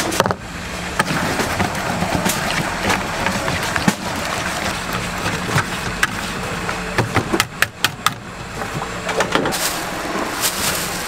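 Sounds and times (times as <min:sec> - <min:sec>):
steady engine hum: 0:00.0 - 0:11.0
whisk beating batter in bowl: 0:01.1 - 0:06.4.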